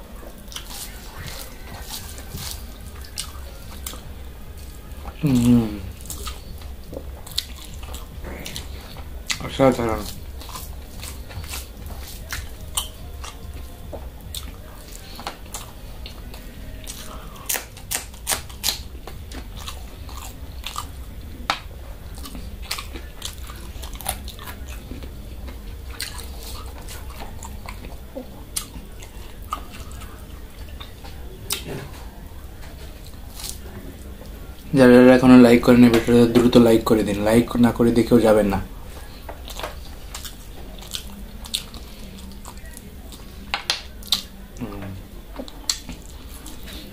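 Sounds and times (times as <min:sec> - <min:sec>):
person chewing food: 0:00.0 - 0:46.9
steady low hum: 0:00.0 - 0:46.9.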